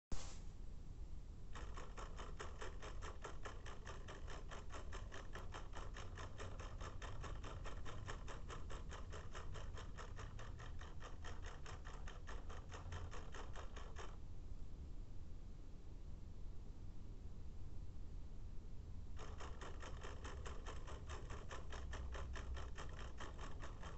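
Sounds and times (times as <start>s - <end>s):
clock ticking rapidly: 1.5s - 14.2s, 19.2s - 23.9s.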